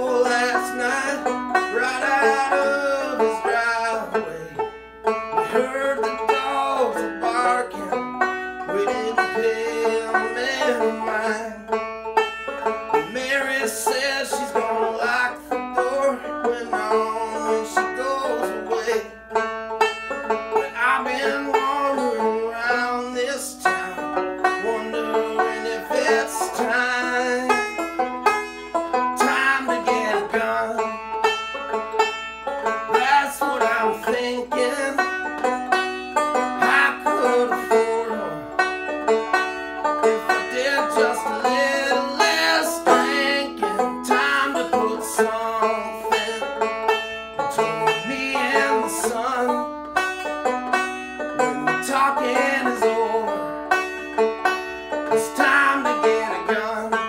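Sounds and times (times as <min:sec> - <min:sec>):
banjo playing country tune: 0:00.0 - 0:57.0.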